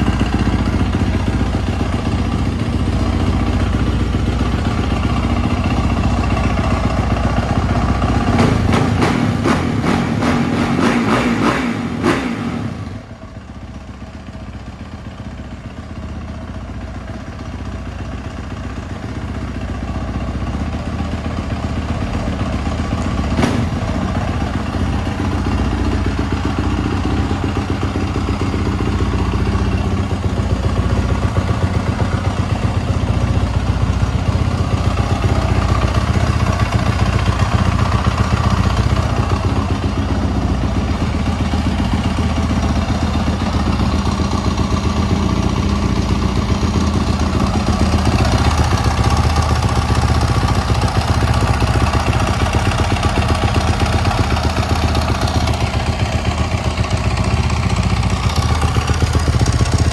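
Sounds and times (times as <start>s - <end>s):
motorcycle engine revving and idling: 0.0s - 59.9s.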